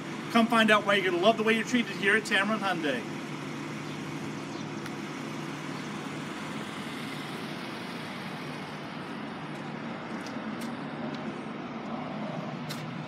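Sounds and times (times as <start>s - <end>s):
car engine idling: 0.0s - 13.0s
outdoor background noise: 0.0s - 13.0s.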